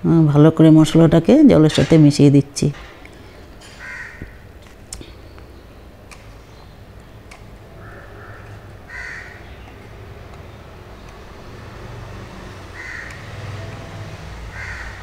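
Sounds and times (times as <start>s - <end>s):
crow cawing: 3.7s - 4.4s, 7.8s - 9.6s, 12.7s - 13.6s, 14.5s - 15.0s.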